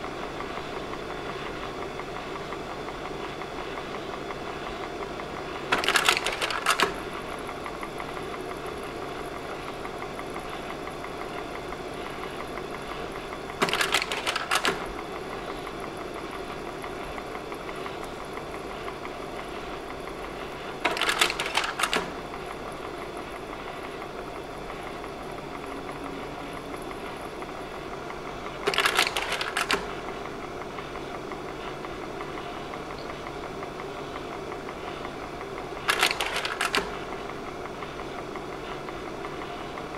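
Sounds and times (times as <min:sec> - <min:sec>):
projector cooling fan humming: 0:00.0 - 0:39.9
slide-change mechanism clacking: 0:20.9 - 0:22.2.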